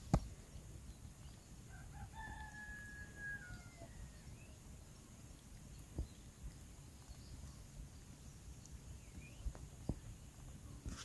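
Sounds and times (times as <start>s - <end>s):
rooster crowing: 1.7s - 4.2s.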